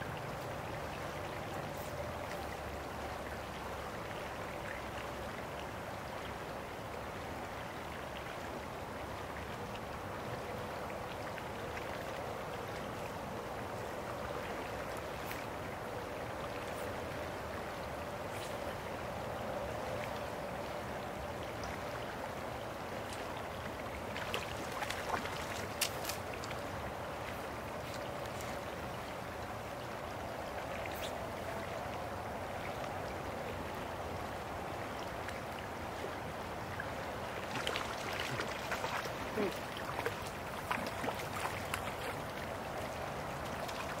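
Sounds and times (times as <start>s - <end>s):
creek water flowing: 0.0s - 44.0s.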